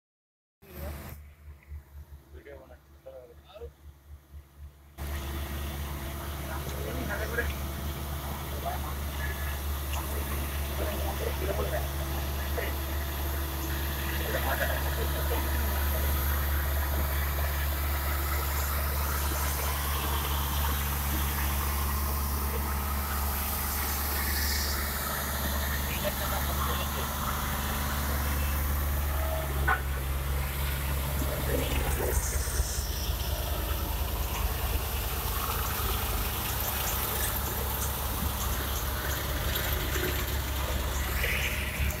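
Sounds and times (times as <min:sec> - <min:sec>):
road roller diesel engine humming: 0:00.6 - 0:42.0.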